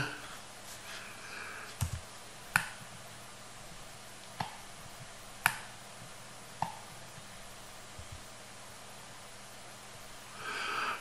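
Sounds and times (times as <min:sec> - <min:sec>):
faint steady hiss: 0:00.0 - 0:11.0
computer mouse buttons clicking: 0:05.4 - 0:05.7.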